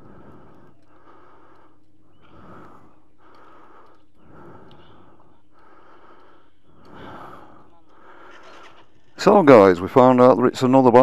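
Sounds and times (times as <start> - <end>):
person breathing heavily: 0.0 - 9.2
steady low hum: 0.0 - 11.0.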